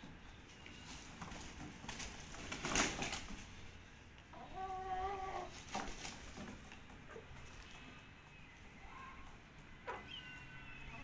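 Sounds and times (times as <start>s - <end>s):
chicken call: 8.8s - 11.0s.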